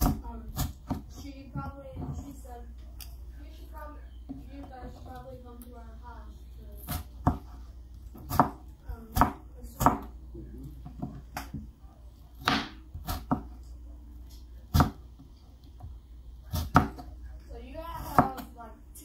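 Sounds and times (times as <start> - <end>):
knife chopping on cutting board: 0.0 - 1.2, 6.8 - 10.1, 12.4 - 13.6, 14.7 - 15.3, 16.5 - 17.1.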